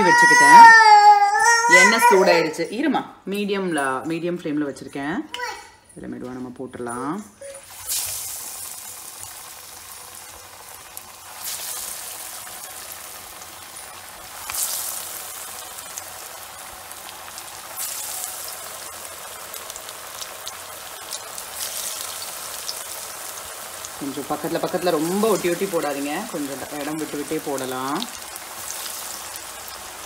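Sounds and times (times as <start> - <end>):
patties sizzling in hot oil: 0.0 - 0.9, 7.0 - 30.0.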